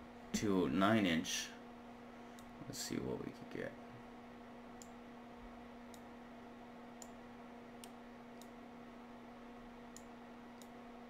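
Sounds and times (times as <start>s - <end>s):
faint electrical hum: 0.0s - 11.0s
computer mouse clicking: 7.8s - 8.6s, 10.0s - 10.8s.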